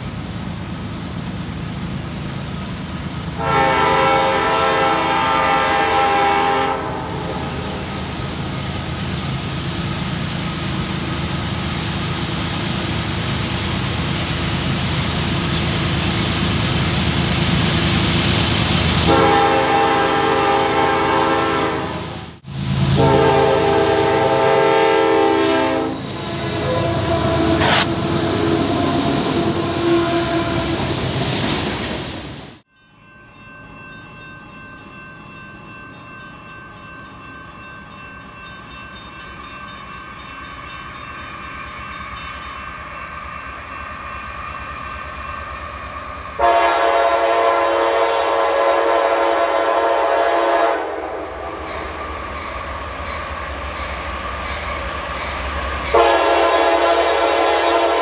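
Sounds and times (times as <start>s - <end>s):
diesel locomotive passing: 0.0s - 58.0s
long train horn blast: 3.4s - 8.0s, 19.0s - 31.1s, 46.4s - 51.5s, 55.9s - 58.0s
multi-tone train horn: 3.4s - 8.0s, 19.0s - 31.0s, 46.3s - 51.5s, 55.9s - 58.0s.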